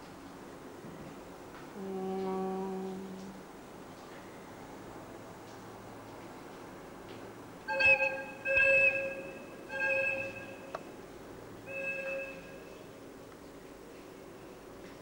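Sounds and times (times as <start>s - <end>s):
locomotive air horn blasts: 7.7s - 10.7s, 11.7s - 12.7s.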